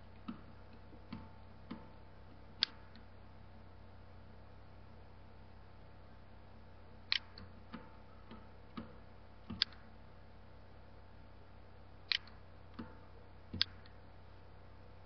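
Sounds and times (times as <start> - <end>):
faint steady hum: 0.0 - 15.0
computer mouse clicking: 2.6 - 3.0, 7.1 - 9.9, 12.1 - 14.0.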